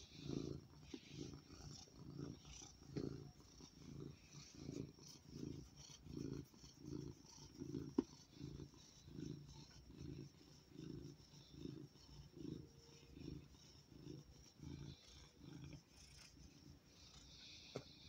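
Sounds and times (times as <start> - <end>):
cat purring: 0.0 - 18.0.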